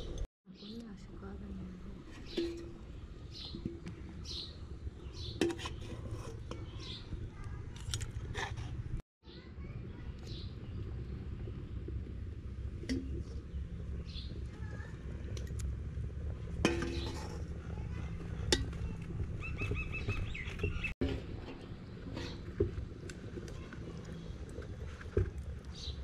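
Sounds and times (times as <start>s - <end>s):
low background rumble: 0.0s - 26.0s
bird calling: 18.8s - 20.9s.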